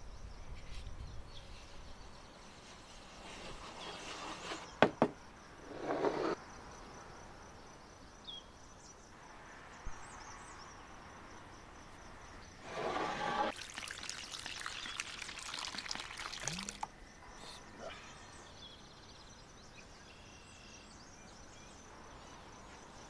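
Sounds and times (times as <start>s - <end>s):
wooden bowl scraping flour: 2.7s - 4.8s, 5.7s - 6.4s, 12.6s - 13.5s
wooden knocks: 4.8s - 6.4s
water pouring into flour: 13.4s - 16.9s.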